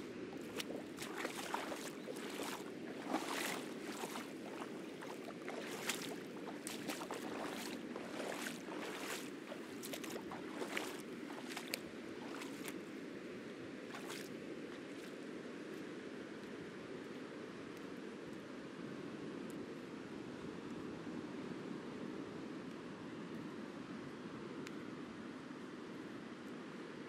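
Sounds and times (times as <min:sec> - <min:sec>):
ocean surf on reef: 0:00.0 - 0:13.4
footsteps on wet rock: 0:00.4 - 0:12.8, 0:13.9 - 0:14.3
splashes in tide pools: 0:00.4 - 0:12.9, 0:13.8 - 0:15.2.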